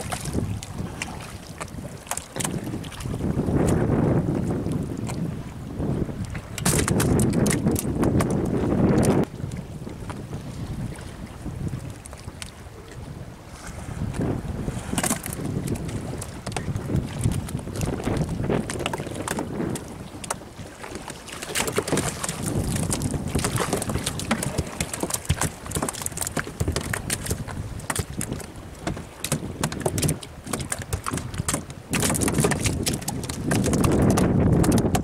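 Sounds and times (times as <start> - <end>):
wind buffeting microphone: 0.0 - 35.0
small knocks and taps: 22.9 - 35.0.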